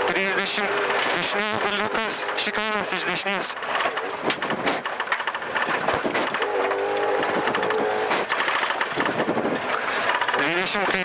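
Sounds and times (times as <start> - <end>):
car engine running hard: 0.0 - 11.0.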